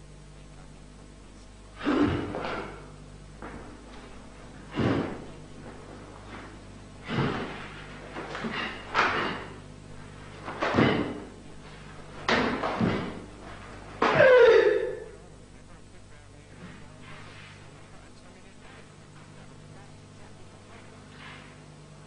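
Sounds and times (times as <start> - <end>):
feet stamping on wooden floor: 12.1 - 14.2
person shouting: 14.0 - 15.2.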